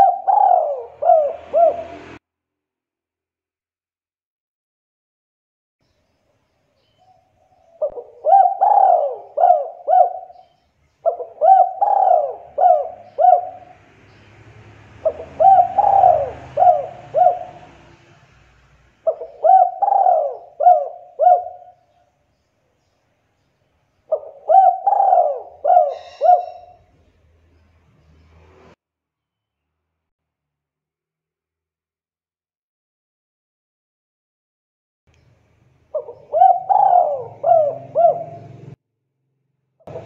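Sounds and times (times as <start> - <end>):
dove cooing: 0.0 - 2.2, 7.6 - 13.8, 15.0 - 18.0, 19.0 - 21.9, 24.1 - 26.9, 35.9 - 38.8.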